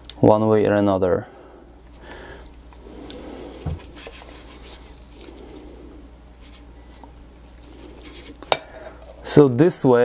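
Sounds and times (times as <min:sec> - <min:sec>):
gloved hands rustling: 0:01.8 - 0:08.6.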